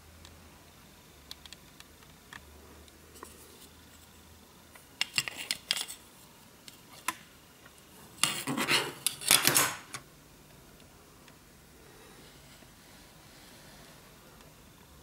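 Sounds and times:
circuit boards clicking: 0:01.2 - 0:03.0.

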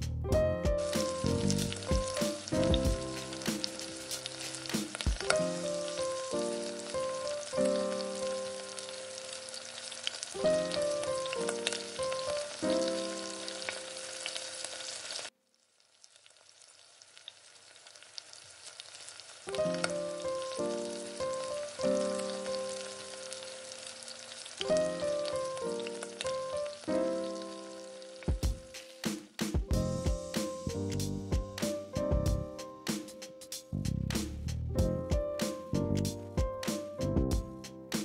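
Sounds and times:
light background music: 0:00.0 - 0:09.6, 0:24.7 - 0:38.0
batter sizzling in a frying pan: 0:00.8 - 0:29.1.

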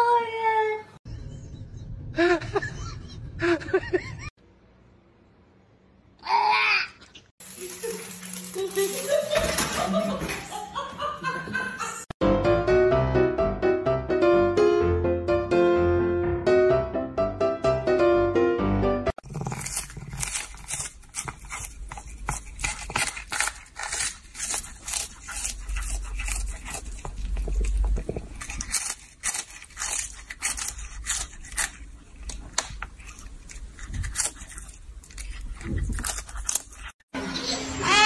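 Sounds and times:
cat crunching a treat: 0:19.2 - 0:37.0.

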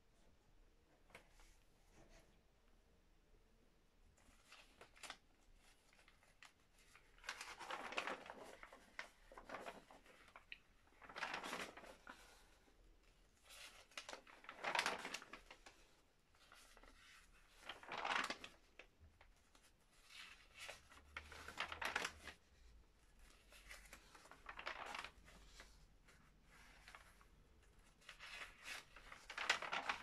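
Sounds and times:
paper pages turning: 0:04.2 - 0:30.0.

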